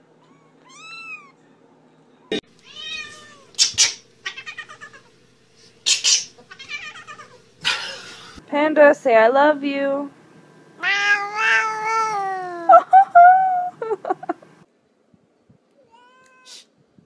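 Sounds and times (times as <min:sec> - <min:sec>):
cats meowing: 0:00.2 - 0:01.4, 0:02.6 - 0:05.1, 0:06.4 - 0:07.4, 0:10.8 - 0:12.7, 0:15.8 - 0:16.6
harsh noisy cat cries: 0:02.6 - 0:03.6, 0:04.2 - 0:05.1, 0:06.5 - 0:07.4, 0:10.8 - 0:12.7.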